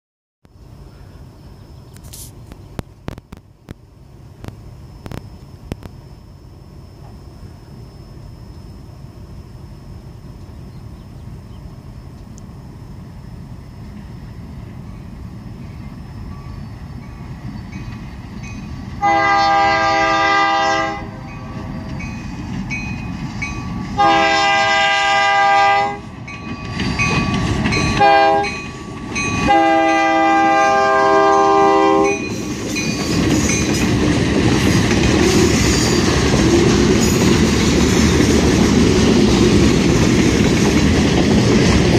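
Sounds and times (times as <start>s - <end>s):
diesel locomotive rumble: 0.5s - 41.9s
locomotive chime air horn: 19.0s - 21.7s, 24.0s - 26.1s, 27.8s - 28.7s, 29.3s - 33.1s
freight cars rolling by: 32.1s - 41.9s.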